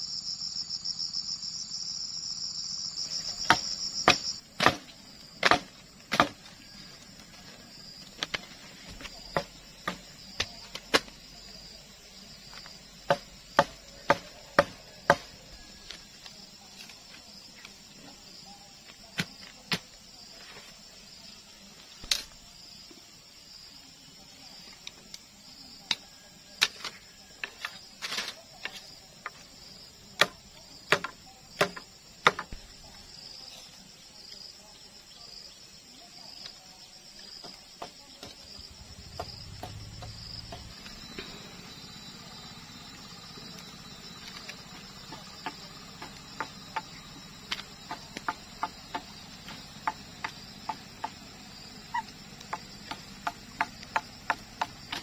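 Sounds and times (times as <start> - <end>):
insects chirring: 0.0 - 55.0
machete chopping dry palm fronds: 3.2 - 7.3, 8.1 - 11.3, 13.0 - 16.0, 19.1 - 20.0, 26.6 - 28.9, 30.1 - 32.6, 37.4 - 41.7, 52.4 - 55.0.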